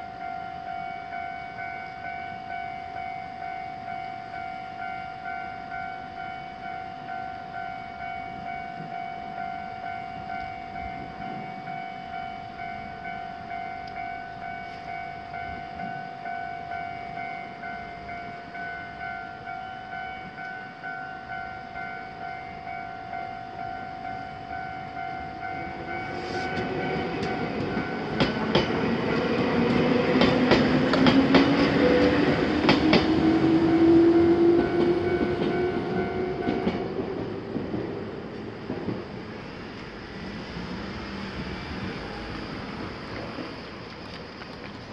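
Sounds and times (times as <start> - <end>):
level-crossing alarm bell ringing: 0.0 - 37.4
train motor whine: 13.8 - 37.6, 38.3 - 43.8
train wheels clicking on rail joints: 25.4 - 44.9.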